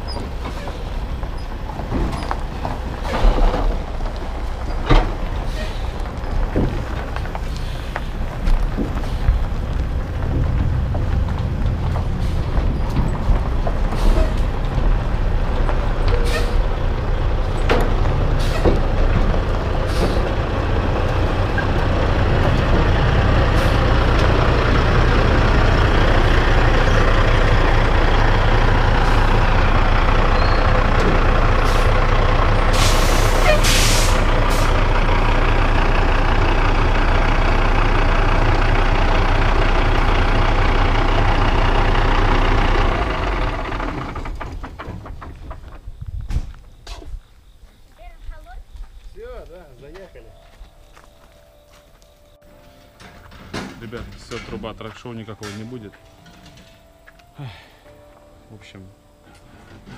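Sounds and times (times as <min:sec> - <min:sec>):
diesel truck engine running: 0:00.0 - 0:46.8, 0:47.4 - 0:59.9
air hissing: 0:32.7 - 0:34.8.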